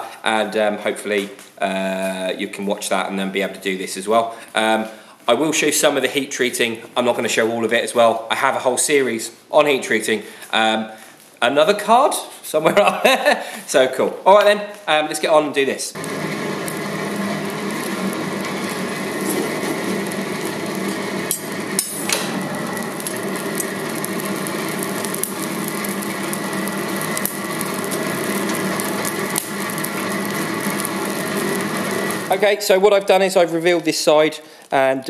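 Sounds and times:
electric air blower running: 0:16.0 - 0:32.4.

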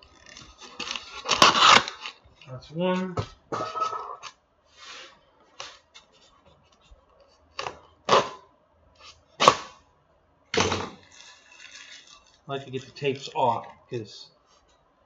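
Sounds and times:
tape ripping: 0:00.0 - 0:02.2, 0:10.9 - 0:13.1
foam creaking and scraping: 0:00.0 - 0:05.2, 0:10.9 - 0:13.4.

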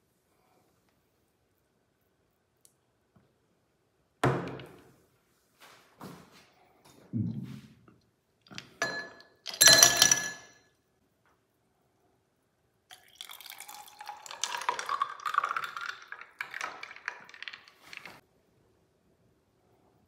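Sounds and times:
ice cubes clinking in glass: 0:08.8 - 0:10.6
juice pouring over ice: 0:12.9 - 0:18.2.

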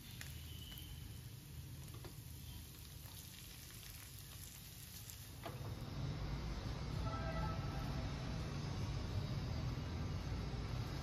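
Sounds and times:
hot fat sizzling with pops: 0:00.0 - 0:05.7.

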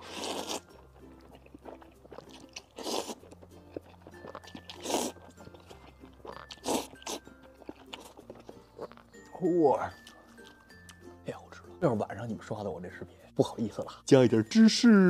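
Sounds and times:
slurping noodles: 0:00.0 - 0:09.0
wet chewing: 0:00.0 - 0:11.1.

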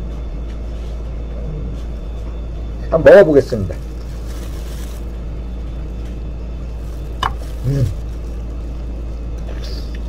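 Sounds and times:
steady low hum: 0:00.0 - 0:10.0
person humming mm: 0:07.6 - 0:08.0.

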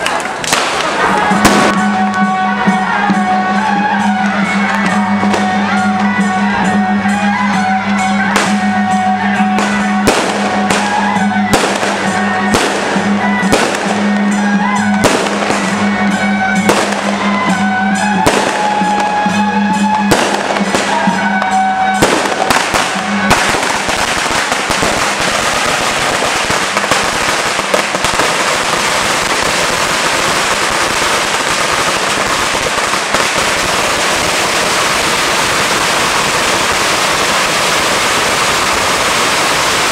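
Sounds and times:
firecrackers crackling: 0:00.0 - 0:39.9
music with held low note: 0:01.3 - 0:24.0
sharp bangs: 0:08.2 - 0:38.4.

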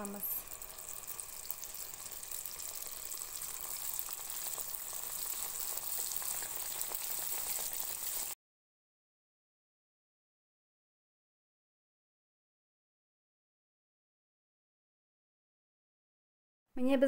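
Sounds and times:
dough sizzling in hot oil: 0:00.0 - 0:08.4.

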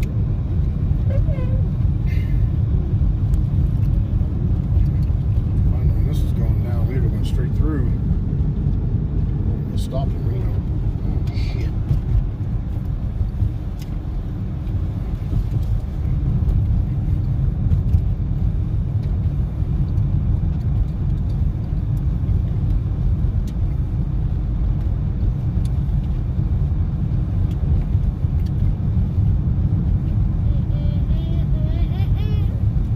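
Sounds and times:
car tyres and engine rumble: 0:00.0 - 0:32.9.

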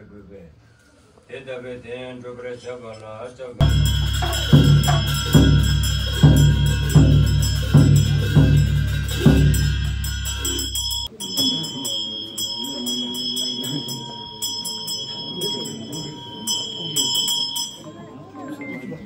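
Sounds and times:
music with heavy bass beat: 0:03.6 - 0:11.1
music with bell-like tones: 0:03.6 - 0:18.9.

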